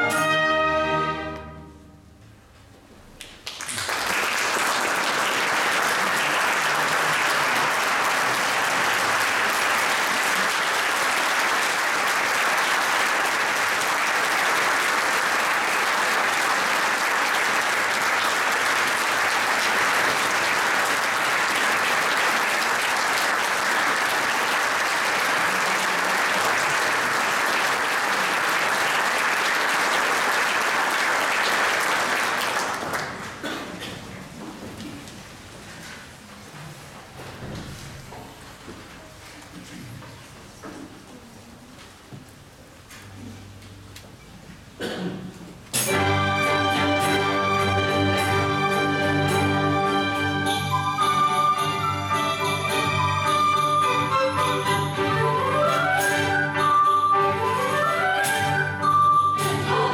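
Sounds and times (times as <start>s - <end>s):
audience applauding: 3.2s - 33.5s, 46.0s - 59.9s.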